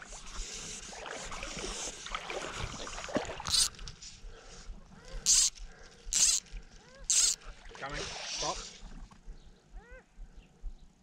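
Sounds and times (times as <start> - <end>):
fly line swishing: 3.4 - 3.8, 5.2 - 7.4.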